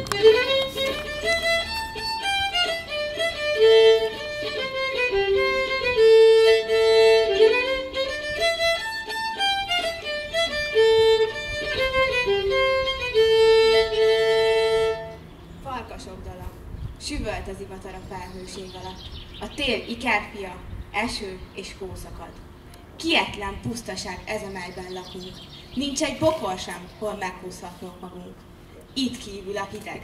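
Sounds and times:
solo violin melody: 0.0s - 15.2s.

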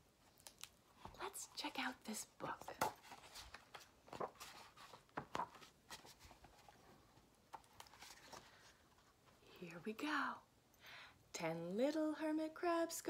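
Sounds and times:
paper rustling: 2.6s - 9.4s.

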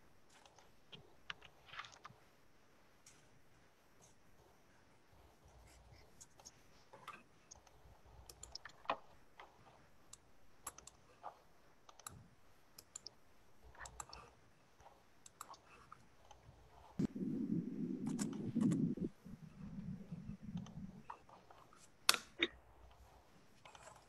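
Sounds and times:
mouse and keyboard clicks: 5.6s - 12.2s, 12.8s - 17.1s, 18.0s - 24.0s.

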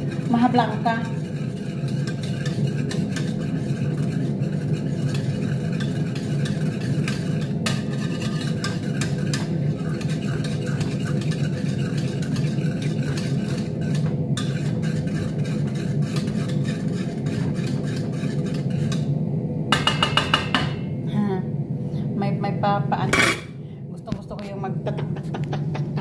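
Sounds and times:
spoon scraping metal pot: 0.0s - 19.1s
range hood fan humming: 0.0s - 26.0s.

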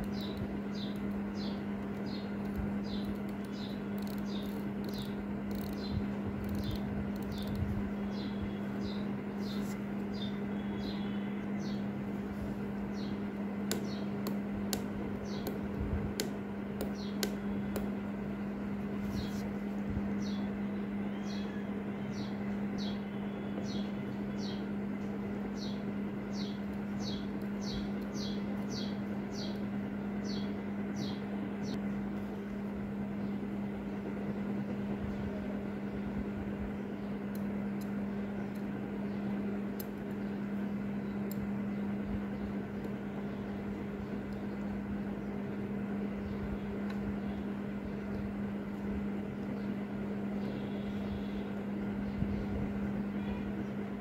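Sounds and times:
bird chirping: 0.0s - 11.9s, 15.2s - 15.6s, 20.2s - 24.7s, 25.5s - 31.8s
steady low hum: 0.0s - 54.0s.

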